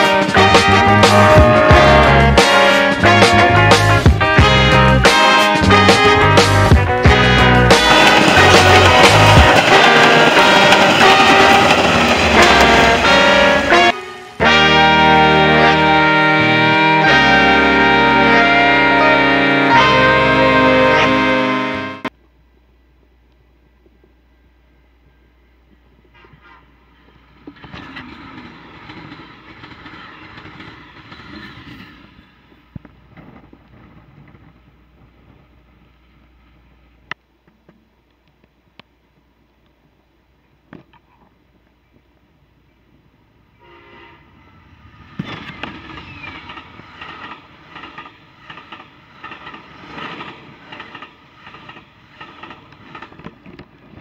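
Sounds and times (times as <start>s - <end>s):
train horn: 0.0s - 22.1s, 43.5s - 46.5s
train passing at speed: 5.1s - 22.1s, 26.9s - 33.8s, 43.2s - 54.0s
wheels clattering over rail joints: 7.4s - 13.9s, 26.2s - 34.4s, 45.2s - 54.0s
wheel clicks: 7.7s - 13.3s.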